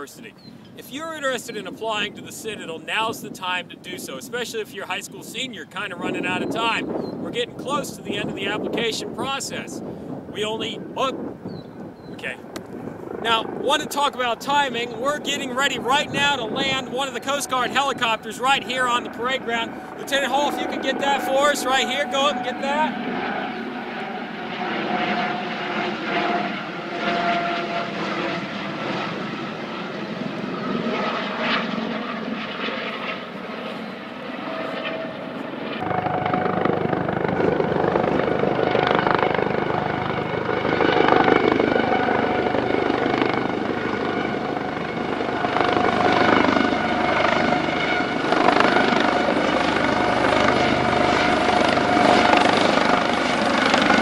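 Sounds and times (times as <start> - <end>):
helicopter rotor with high whine: 0.0 - 54.0.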